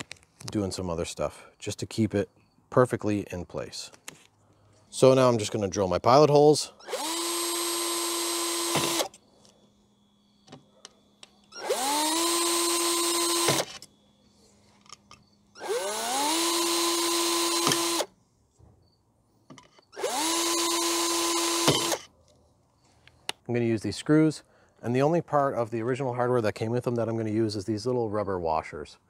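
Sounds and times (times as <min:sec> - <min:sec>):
cordless drill drilling into metal: 0:06.8 - 0:09.2, 0:11.5 - 0:13.9, 0:15.6 - 0:18.1, 0:19.9 - 0:22.1.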